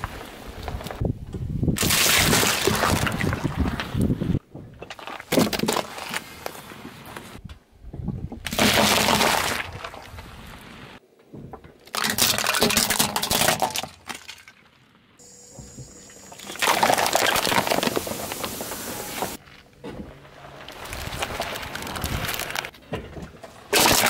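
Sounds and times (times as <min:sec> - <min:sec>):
car tyre crushing plastic toys: 0:04.8 - 0:06.6, 0:11.8 - 0:14.8, 0:16.4 - 0:19.6, 0:20.3 - 0:24.0
glass bottles breaking under tyre: 0:11.9 - 0:14.7, 0:16.4 - 0:18.4, 0:23.7 - 0:24.0
drink fizzing: 0:16.3 - 0:19.4.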